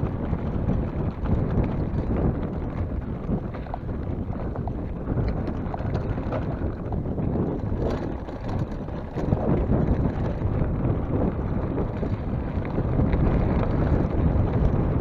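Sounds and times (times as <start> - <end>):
bike jolts: 0.0 - 15.0
bike rattling with clicks: 0.0 - 15.0
wind rumbling on microphone: 0.0 - 15.0
tyres crunching over stones: 0.2 - 14.6.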